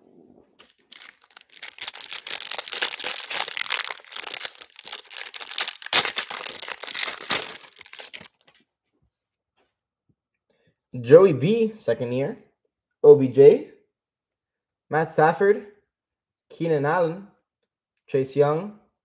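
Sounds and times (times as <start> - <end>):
cellophane crinkling and tearing: 0.6 - 8.6.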